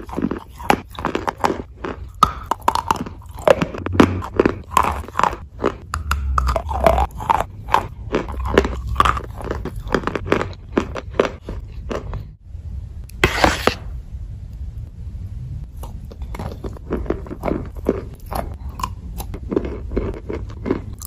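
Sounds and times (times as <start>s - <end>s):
chalk crunching while chewed: 0.0s - 12.3s, 15.8s - 21.0s.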